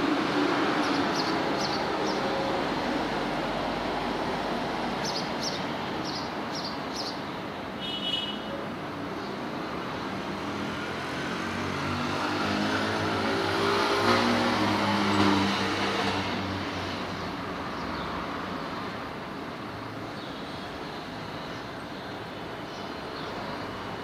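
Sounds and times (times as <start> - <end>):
vehicle passing by: 10.3 - 16.4.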